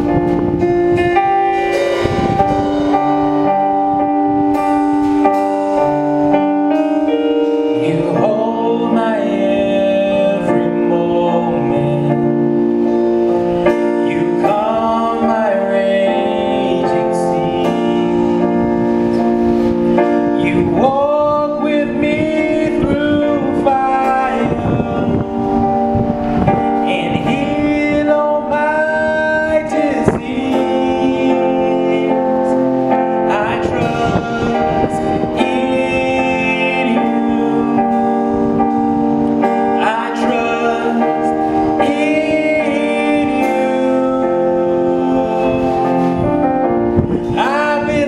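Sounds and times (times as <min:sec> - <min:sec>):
keyboard chords: 0:00.0 - 0:48.0
male vocal group singing: 0:07.6 - 0:12.7, 0:13.9 - 0:18.4, 0:20.3 - 0:25.5, 0:26.8 - 0:38.3, 0:39.5 - 0:46.3, 0:47.0 - 0:48.0.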